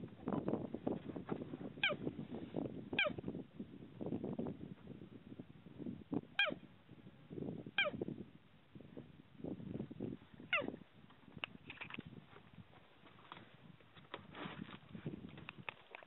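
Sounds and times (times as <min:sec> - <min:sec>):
cheetah chirping: 0:01.8 - 0:02.0, 0:06.4 - 0:06.6, 0:07.8 - 0:08.0.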